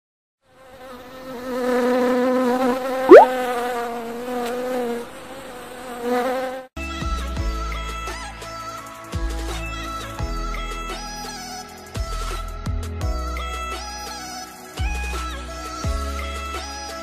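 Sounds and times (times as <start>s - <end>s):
wavering insect buzz: 1.5s - 3.9s
quick rising whistle: 3.1s - 3.3s.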